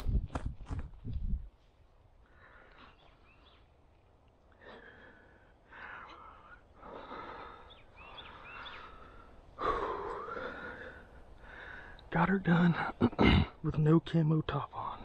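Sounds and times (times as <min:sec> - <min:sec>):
man breathing hard: 0:02.2 - 0:03.1, 0:04.5 - 0:12.1.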